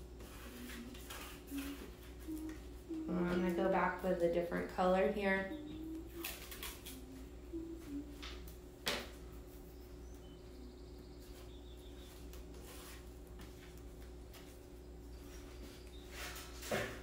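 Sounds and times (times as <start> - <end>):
faint hum: 0.0 - 17.0
sharp tape crackle: 6.1 - 7.1
tape rustling and clicking: 6.1 - 7.1.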